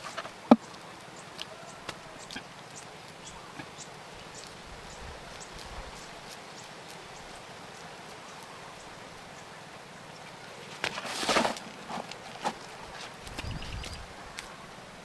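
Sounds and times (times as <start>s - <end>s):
faint outdoor ambience: 0.0s - 15.0s
hand scooping wet clay: 10.7s - 13.5s.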